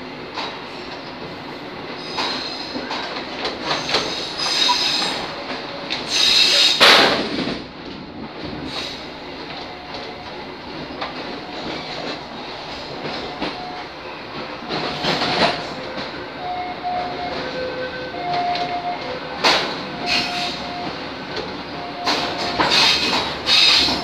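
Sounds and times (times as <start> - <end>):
train wheels clicking: 0.2 - 24.0
wheel squeal: 3.7 - 5.3, 22.1 - 24.0.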